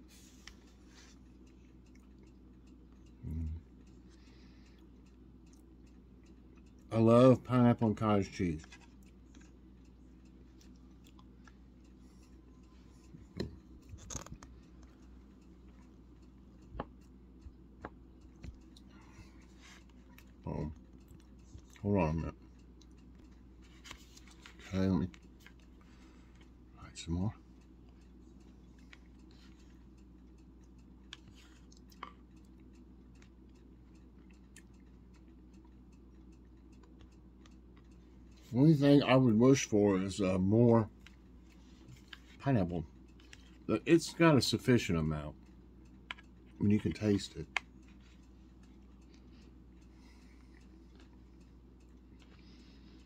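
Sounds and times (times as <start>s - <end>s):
faint steady hum: 0.0s - 53.0s
quiet eating: 0.0s - 53.0s.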